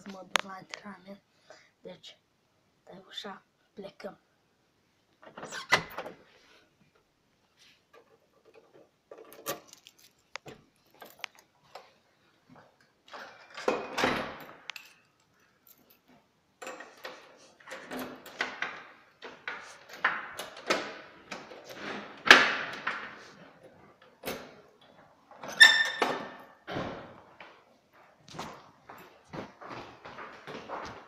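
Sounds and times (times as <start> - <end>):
keys jangling: 9.4 - 11.4.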